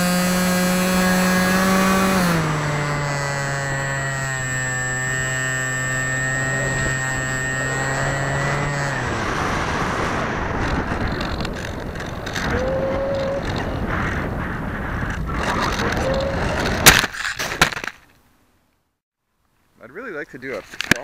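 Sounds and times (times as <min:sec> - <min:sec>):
electric motor buzzing hum: 0:00.0 - 0:13.3
rough scraping crackles: 0:00.0 - 0:18.3
rushing air noise: 0:07.8 - 0:16.9.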